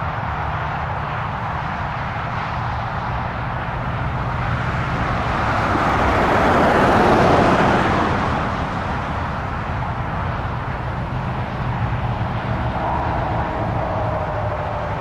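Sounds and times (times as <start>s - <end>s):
jet engines rushing: 0.0s - 15.0s.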